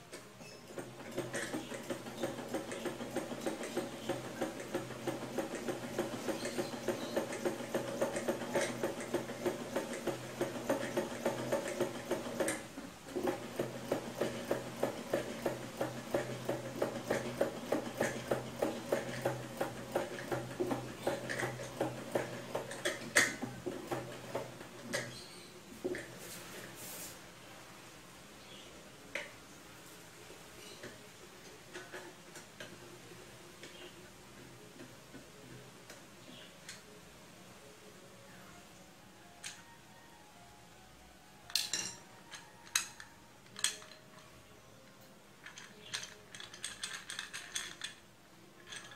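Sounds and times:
sewing machine clicking and clattering: 0:00.1 - 0:25.2, 0:45.4 - 0:48.0, 0:48.6 - 0:48.9.

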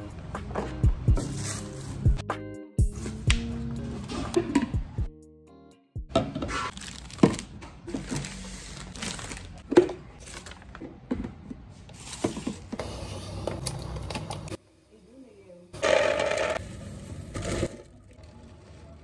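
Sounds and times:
plastic packaging crinkling: 0:06.7 - 0:10.8.

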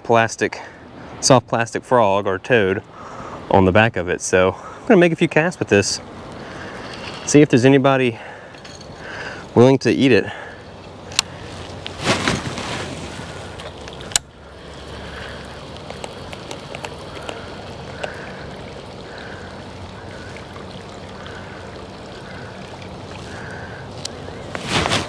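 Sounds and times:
water gurgling and sloshing: 0:05.6 - 0:25.0.

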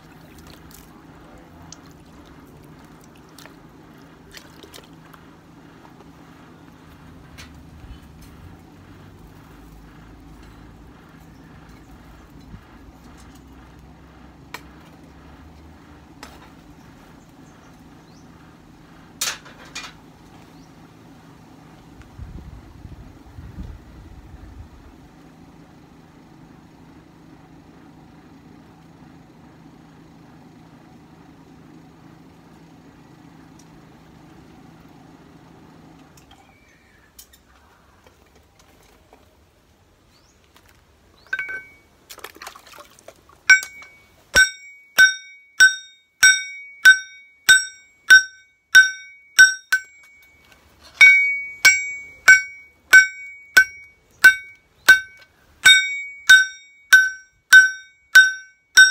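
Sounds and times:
low hum: 0:41.2 - 0:41.9, 0:43.5 - 0:58.9
hammer striking metal on anvil: 0:41.3 - 0:41.8, 0:43.5 - 0:50.4, 0:51.0 - 0:58.9.

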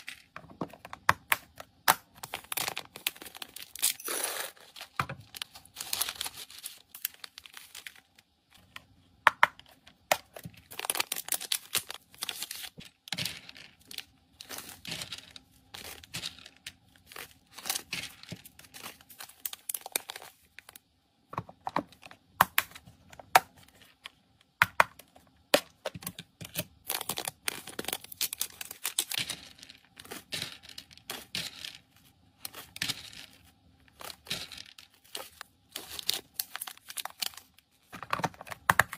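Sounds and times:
plastic bags crinkling: 0:02.1 - 0:08.8, 0:10.2 - 0:20.8, 0:25.9 - 0:38.9
tablets clicking against plastic: 0:32.5 - 0:38.9.

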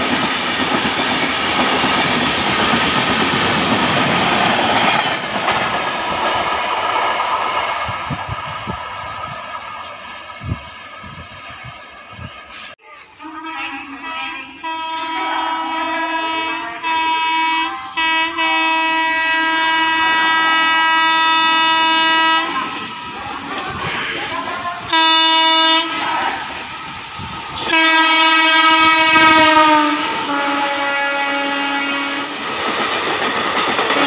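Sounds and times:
passing train rush and clatter: 0:00.0 - 0:34.0
locomotive air horn blasts: 0:13.2 - 0:22.8, 0:24.8 - 0:26.0, 0:27.5 - 0:32.3.

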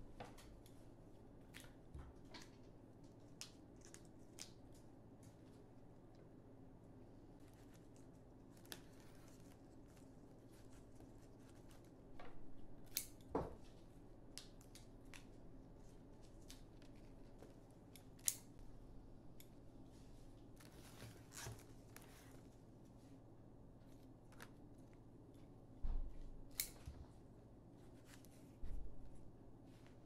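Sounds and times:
low steady hum: 0:00.0 - 0:30.0
scissors snipping stems: 0:12.8 - 0:13.3, 0:17.9 - 0:18.6, 0:26.5 - 0:26.8.

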